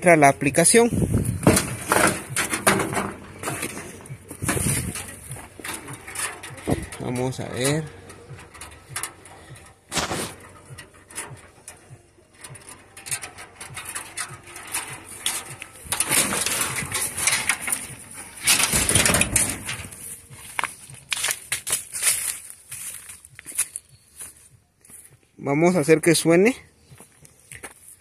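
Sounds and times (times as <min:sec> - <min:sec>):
plants and brush rustling: 0:00.2 - 0:25.9
microphone handling rumble: 0:00.8 - 0:10.8
knocks and clicks: 0:01.2 - 0:21.8.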